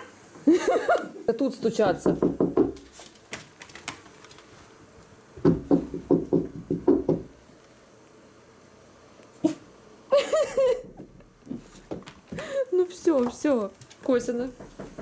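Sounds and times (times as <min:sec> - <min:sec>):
knuckles knocking on wood: 0:02.0 - 0:02.8, 0:05.4 - 0:07.3, 0:14.5 - 0:15.0.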